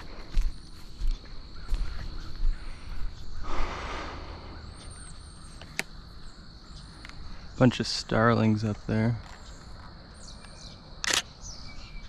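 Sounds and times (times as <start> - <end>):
footsteps on gravel: 0.0 - 3.1
insect trill: 0.0 - 12.0.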